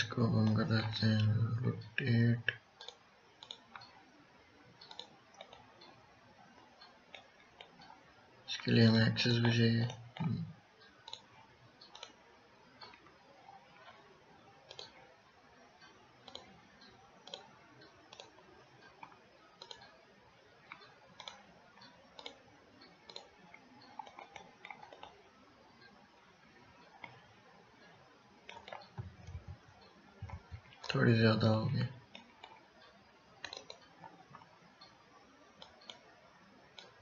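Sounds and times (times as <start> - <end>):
low background hiss: 0.0 - 37.0
faint computer mouse clicks: 2.5 - 4.0, 4.8 - 6.0, 9.9 - 12.2, 14.7 - 15.0, 15.8 - 19.9, 20.7 - 25.2, 32.1 - 35.0, 35.6 - 36.1.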